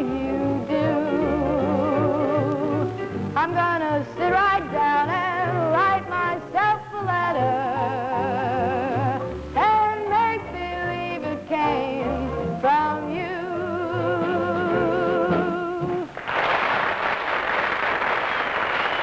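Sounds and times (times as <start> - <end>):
applause: 16.1 - 19.0.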